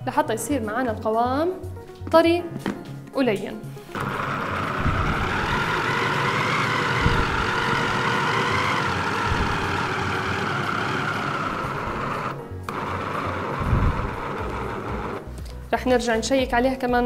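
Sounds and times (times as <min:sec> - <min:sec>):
blades mincing wet mixture: 0:03.9 - 0:15.3
electric food chopper motor running: 0:03.9 - 0:15.4.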